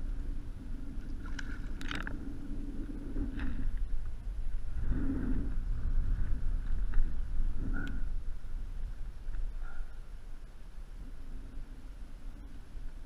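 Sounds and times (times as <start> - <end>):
wind rumbling on microphone: 0.0 - 13.0
water lapping against kayak hull: 0.5 - 4.7.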